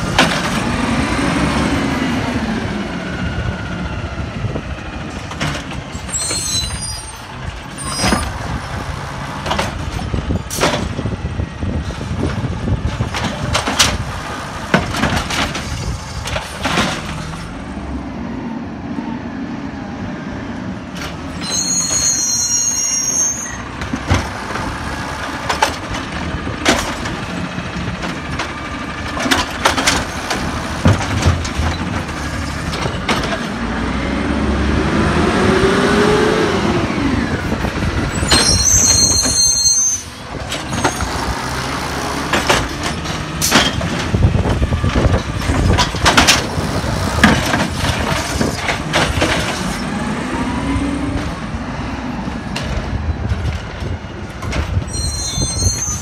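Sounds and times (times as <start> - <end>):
lift arm and carts clanking: 12.0 - 17.6, 23.5 - 34.0, 37.3 - 50.5
garbage truck engine running: 23.6 - 39.0, 40.2 - 54.8.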